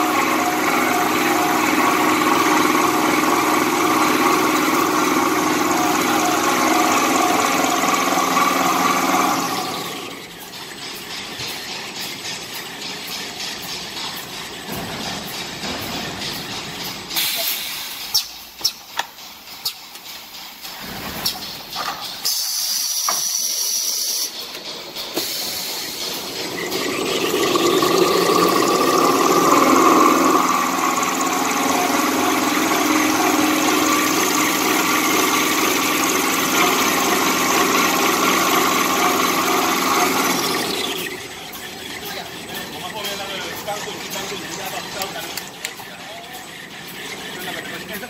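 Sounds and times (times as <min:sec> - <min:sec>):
machine rising whine and running: 0:00.0 - 0:48.0
machine mechanism knocks and clicks: 0:10.3 - 0:22.4.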